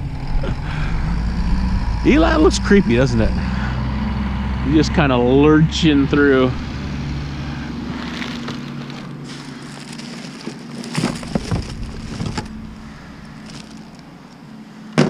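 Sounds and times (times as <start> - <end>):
garbage truck engine humming: 0.0 - 15.0
trash rummaged in a cart: 7.4 - 15.0.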